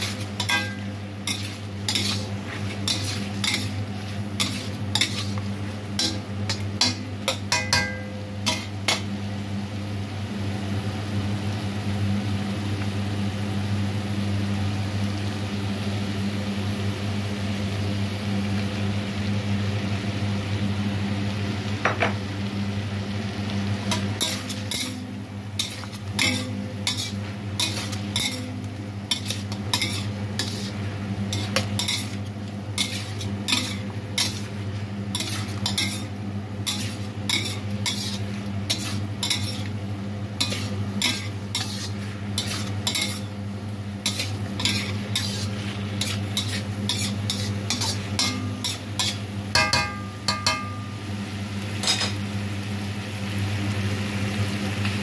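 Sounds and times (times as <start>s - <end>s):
spatula scraping metal wok: 0.0s - 9.0s, 23.9s - 39.8s, 40.4s - 43.4s, 44.0s - 49.2s, 51.8s - 52.2s
steady low hum: 0.0s - 10.8s, 22.4s - 52.6s
light sizzle: 0.0s - 55.0s.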